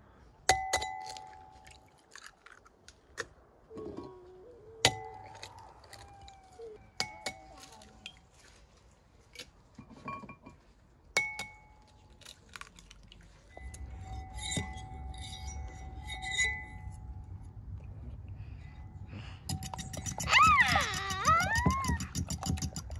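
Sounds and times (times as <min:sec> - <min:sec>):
utensil clinking against glass bowl: 0:19.5 - 0:22.9.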